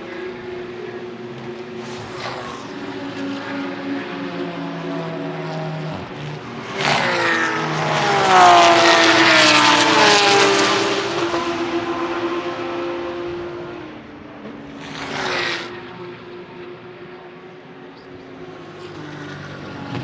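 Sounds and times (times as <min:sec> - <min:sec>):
racing car passing at high revs: 0:00.0 - 0:20.0
steady engine drone: 0:00.0 - 0:20.0.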